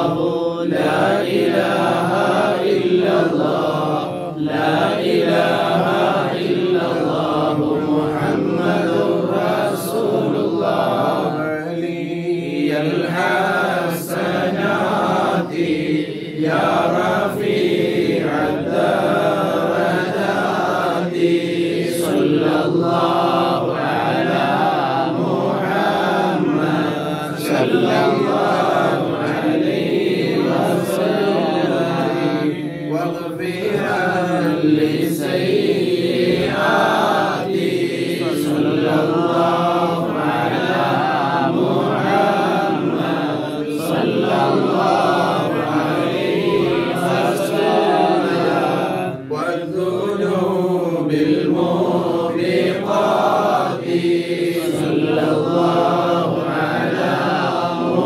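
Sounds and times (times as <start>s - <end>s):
men chanting together: 0.0s - 58.0s.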